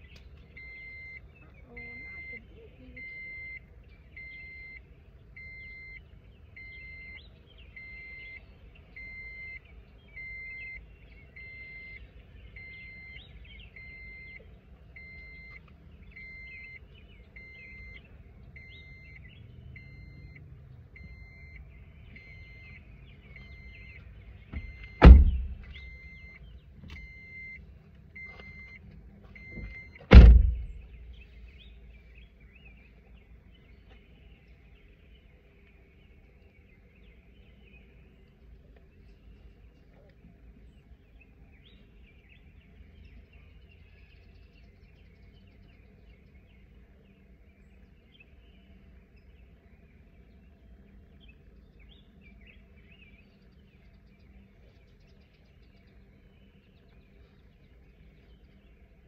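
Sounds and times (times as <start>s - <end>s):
car door warning chime beeping: 0.5s - 18.0s, 18.6s - 20.4s, 21.0s - 28.8s, 29.4s - 31.2s
car doors slamming: 24.4s - 25.9s, 29.5s - 31.1s.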